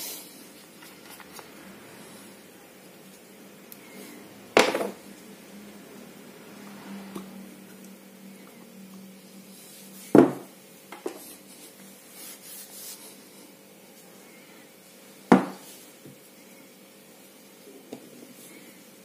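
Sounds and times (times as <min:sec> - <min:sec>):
faint steady hum: 0:00.0 - 0:19.0
objects knocking on work surface: 0:04.6 - 0:05.0, 0:10.2 - 0:10.5, 0:15.3 - 0:15.6.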